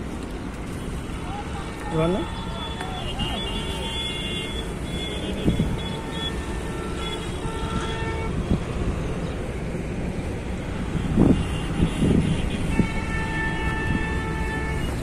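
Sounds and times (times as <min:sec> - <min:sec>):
road traffic rumble: 0:00.0 - 0:15.0
vehicle horns honking: 0:02.1 - 0:08.4, 0:10.9 - 0:15.0.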